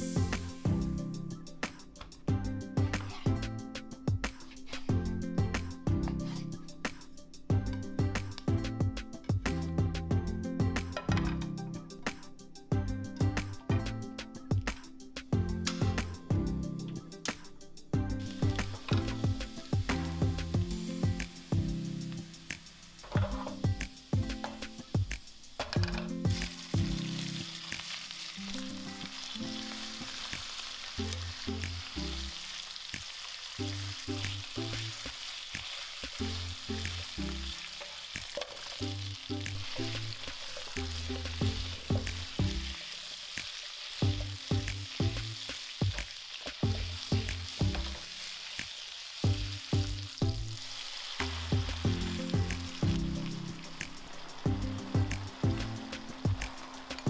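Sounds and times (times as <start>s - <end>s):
food sizzling in frying pan: 0.0s - 1.2s, 18.2s - 57.0s
plucked background music: 0.0s - 57.0s.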